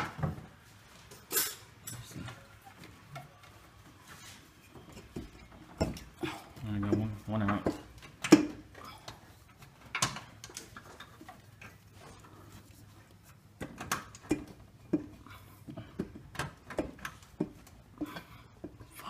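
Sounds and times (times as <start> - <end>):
metal manifold clicking and knocking: 4.9 - 8.7, 13.6 - 15.3.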